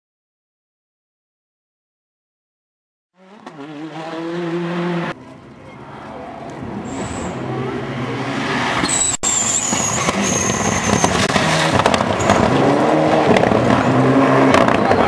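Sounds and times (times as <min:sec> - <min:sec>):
rally car engine revving: 0:03.2 - 0:05.2, 0:06.6 - 0:15.0.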